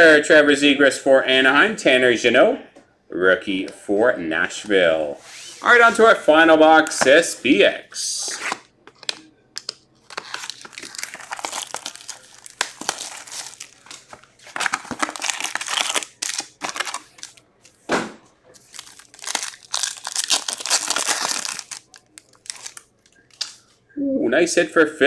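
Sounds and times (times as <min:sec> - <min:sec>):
plastic wrap crinkling: 0:08.5 - 0:17.8, 0:18.5 - 0:23.7
foil pack tearing: 0:10.1 - 0:17.4, 0:18.6 - 0:22.8.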